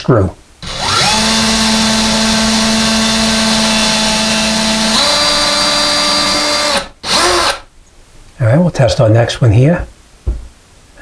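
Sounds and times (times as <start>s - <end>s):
cordless drill whining: 0.6s - 7.7s.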